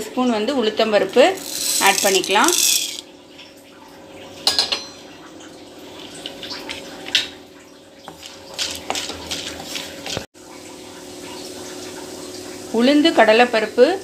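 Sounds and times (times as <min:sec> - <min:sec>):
lentils sizzling in oil: 0:01.4 - 0:03.0
wooden spatula scraping pan: 0:01.4 - 0:03.0.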